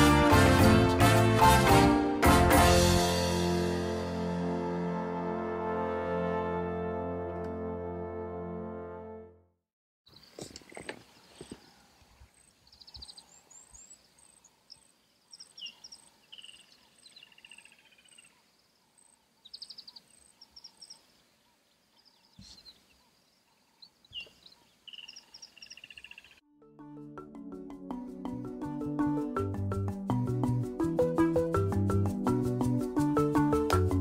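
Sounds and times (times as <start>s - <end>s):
birds calling and trilling: 10.1s - 26.4s.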